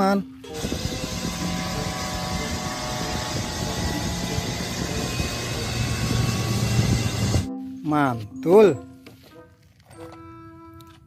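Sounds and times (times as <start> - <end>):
helicopter rotor beat: 0.4 - 7.5
helicopter engine rushing: 0.5 - 7.5.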